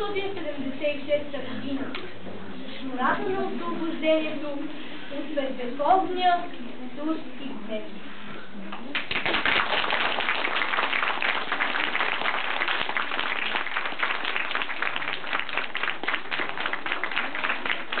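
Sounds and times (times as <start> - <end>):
audience applauding: 8.9 - 18.0.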